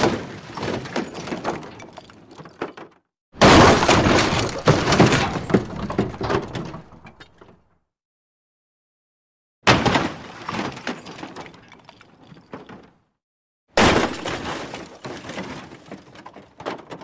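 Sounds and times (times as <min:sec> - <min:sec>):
metal crash with rattling clatter: 0:00.0 - 0:07.5, 0:13.8 - 0:17.0.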